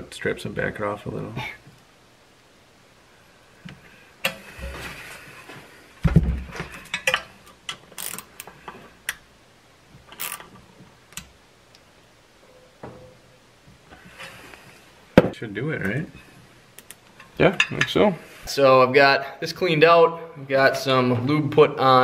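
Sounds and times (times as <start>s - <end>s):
heavy thump: 6.0s - 6.7s, 15.2s - 15.4s.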